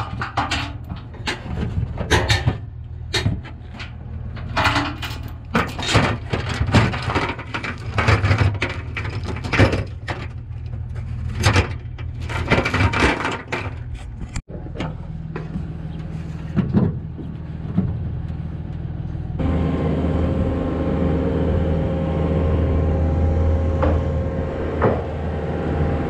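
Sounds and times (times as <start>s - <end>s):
steady low hum: 0.0s - 26.0s
steel chain clanking on metal: 4.4s - 6.6s.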